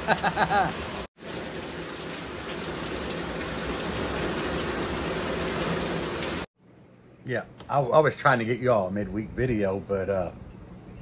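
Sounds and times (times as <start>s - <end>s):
man laughing: 0.0s - 0.8s
heavy rain pouring: 0.0s - 6.5s.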